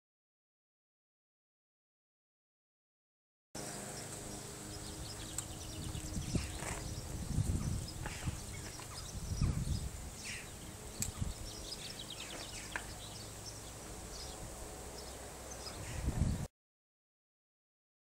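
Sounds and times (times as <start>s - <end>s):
faint bird chirps: 4.7s - 14.4s
wind rumble on microphone: 4.7s - 16.5s.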